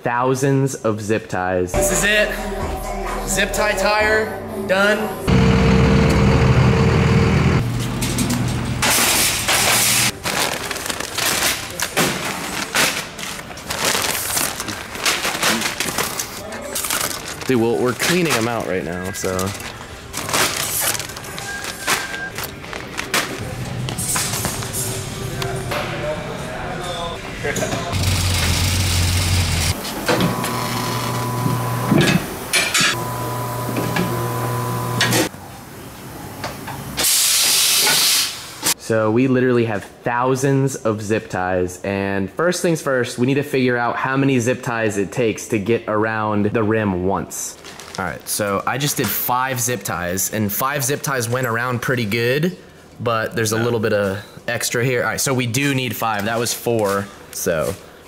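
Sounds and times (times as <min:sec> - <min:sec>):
motor humming: 0:05.3 - 0:08.8, 0:28.0 - 0:35.3
plastic bags crinkling: 0:10.1 - 0:23.5, 0:47.6 - 0:48.4.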